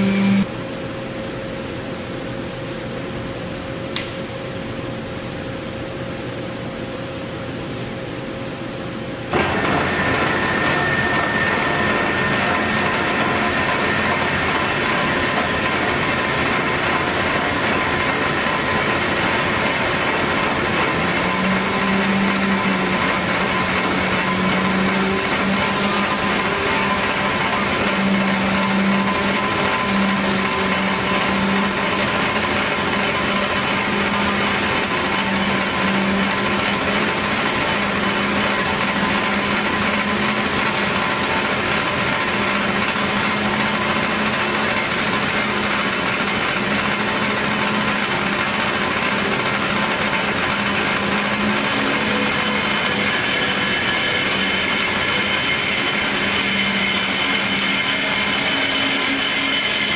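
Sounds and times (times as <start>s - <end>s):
high whining tones: 0.0s - 0.5s, 9.3s - 44.7s
band saw machine hum: 0.0s - 0.6s, 9.3s - 59.9s.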